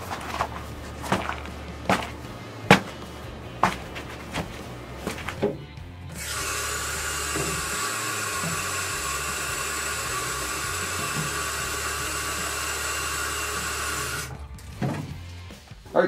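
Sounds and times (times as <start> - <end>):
tap water filling plastic jar: 6.2 - 14.3.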